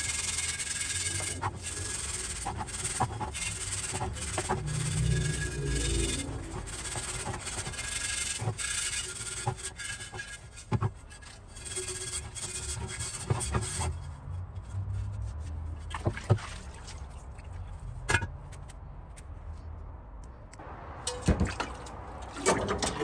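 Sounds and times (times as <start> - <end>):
scouring pad scrubbing metal: 0.0 - 14.1.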